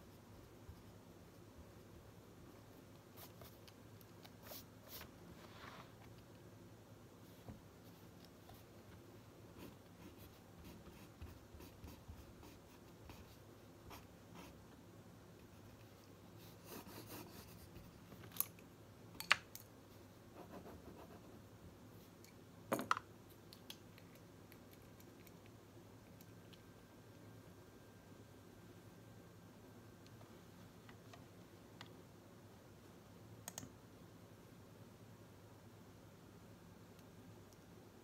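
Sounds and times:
pen scratching on paper: 16.4s - 17.9s.

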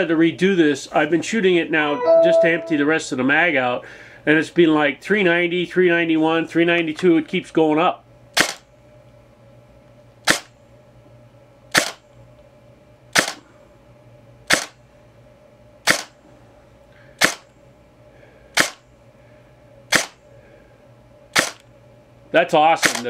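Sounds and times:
airsoft gun shots: 8.4s - 8.6s, 11.7s - 12.0s, 14.5s - 14.7s, 15.9s - 16.1s, 17.2s - 17.4s, 18.6s - 18.8s, 19.9s - 20.2s, 21.4s - 21.6s.

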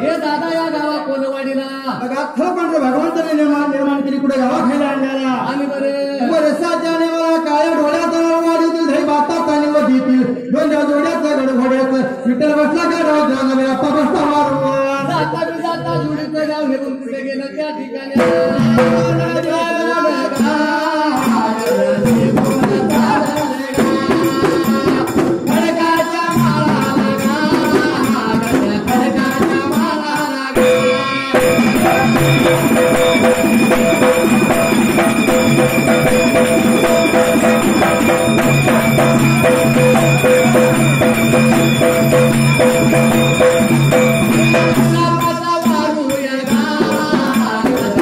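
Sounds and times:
men singing: 13.4s - 48.0s
stick-beaten drum: 20.4s - 48.0s
barrel drum: 21.2s - 45.9s
small hand cymbals: 30.2s - 47.9s.

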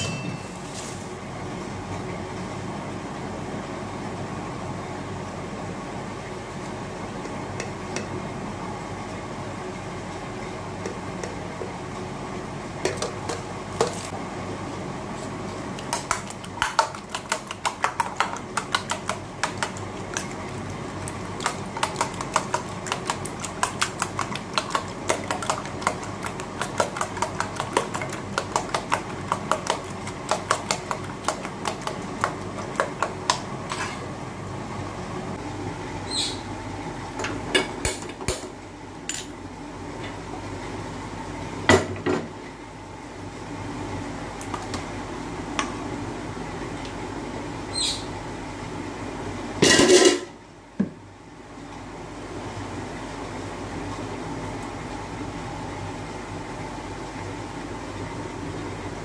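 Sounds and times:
spoon clinking in metal bowl: 0.0s - 0.6s.

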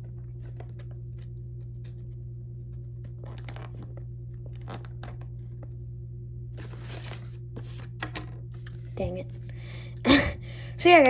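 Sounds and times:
steady low hum: 0.0s - 11.0s
crinkling plastic packaging: 2.8s - 5.8s.

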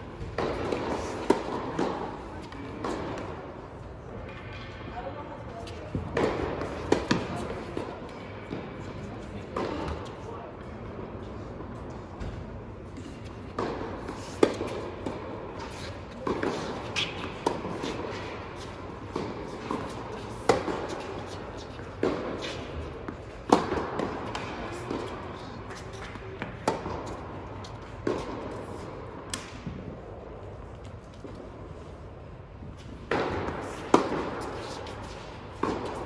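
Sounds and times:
tennis ball bouncing: 0.2s - 3.4s, 5.9s - 8.6s, 9.5s - 10.1s, 13.0s - 31.5s, 32.7s - 36.0s
tennis ball struck by racquets: 0.2s - 3.4s, 5.9s - 8.6s, 13.3s - 29.9s, 32.8s - 36.0s.

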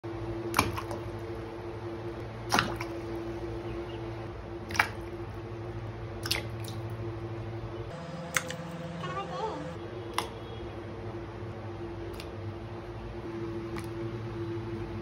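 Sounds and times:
steady low hum: 0.0s - 15.0s
vegetables plopping into water: 0.5s - 1.1s, 2.5s - 3.0s, 4.6s - 5.2s, 6.2s - 6.8s.

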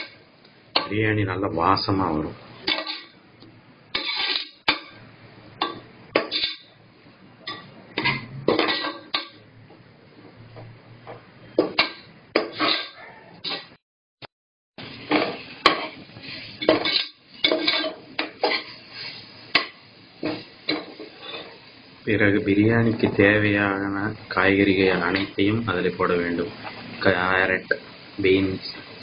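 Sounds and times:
food frying: 3.8s - 9.5s, 14.8s - 29.0s
metal spoon scraping metal pot: 3.9s - 4.7s, 12.5s - 13.7s.

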